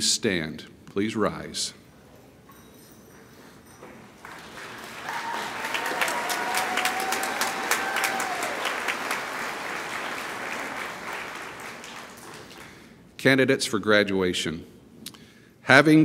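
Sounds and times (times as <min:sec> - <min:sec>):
audience applauding: 0:04.2 - 0:12.9
person cheering: 0:05.0 - 0:09.0.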